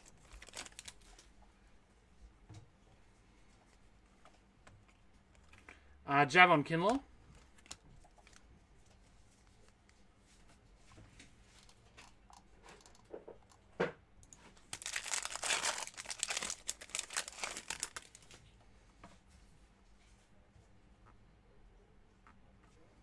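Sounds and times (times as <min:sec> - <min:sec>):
foil wrapper tearing: 0:00.0 - 0:01.2, 0:14.7 - 0:18.4.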